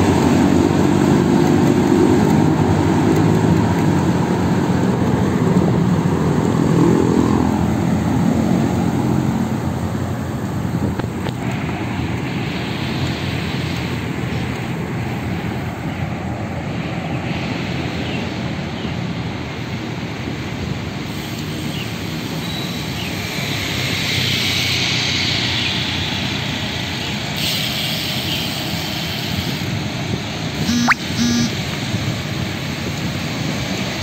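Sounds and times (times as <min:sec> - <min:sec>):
traffic road noise: 0:00.0 - 0:34.0
short two-part pitched tone: 0:30.6 - 0:31.6.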